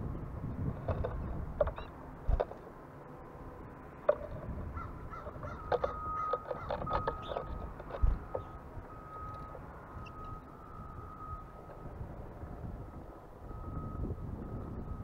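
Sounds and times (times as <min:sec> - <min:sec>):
wild birds calling: 0:01.0 - 0:02.6, 0:04.0 - 0:10.6.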